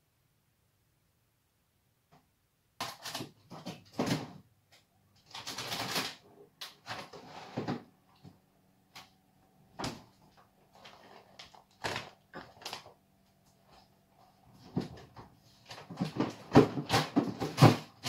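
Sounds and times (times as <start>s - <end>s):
faint steady hum: 0.0s - 17.3s
items moved in a fridge: 2.8s - 4.4s, 5.2s - 8.4s, 9.7s - 18.0s
plastic packet handled: 10.7s - 13.8s.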